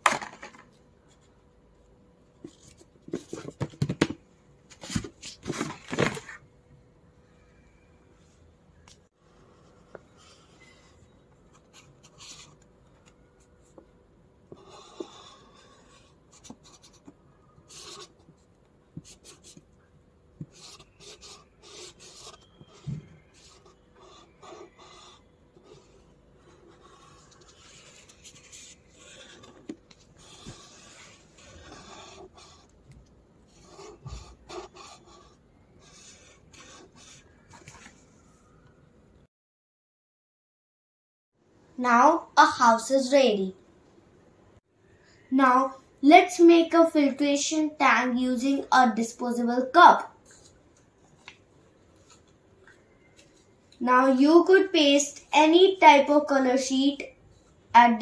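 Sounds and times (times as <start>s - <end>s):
marker scratching on paper: 9.2s - 12.6s, 14.5s - 18.4s, 19.0s - 19.7s, 20.4s - 32.8s, 33.5s - 37.5s.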